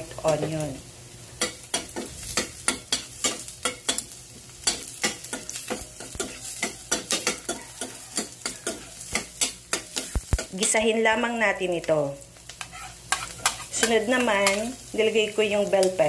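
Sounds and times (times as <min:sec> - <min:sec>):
onion sizzling in oil: 0:00.0 - 0:16.0
metal spoon scraping pan: 0:04.6 - 0:10.8, 0:12.6 - 0:14.8.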